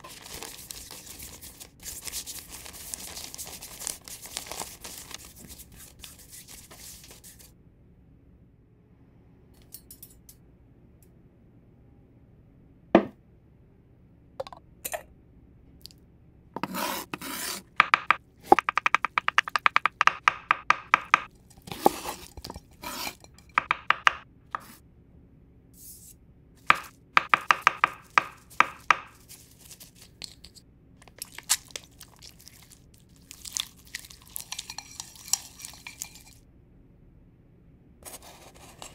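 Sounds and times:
breadcrumbs rustling: 0.0s - 7.5s, 27.8s - 30.4s, 31.0s - 36.4s
knife chopping on wooden board: 16.6s - 24.8s, 26.7s - 29.2s.

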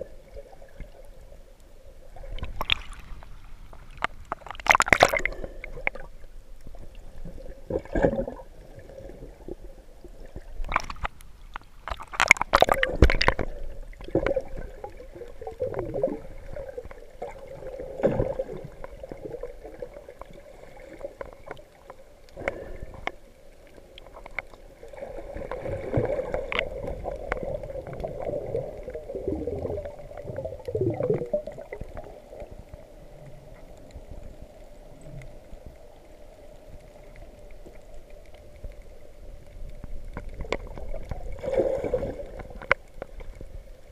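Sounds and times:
underwater low hum: 0.0s - 43.9s
bursts of water noise: 2.1s - 6.1s, 10.3s - 19.5s.

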